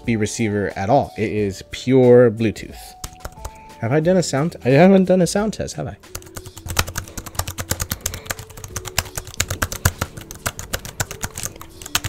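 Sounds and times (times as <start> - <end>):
fast typing on keyboard: 3.0 - 3.6, 6.1 - 12.0.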